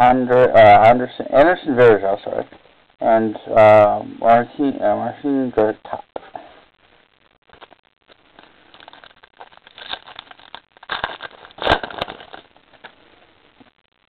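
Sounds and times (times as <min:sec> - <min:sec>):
wrapper rustling and tearing: 0:07.5 - 0:13.0.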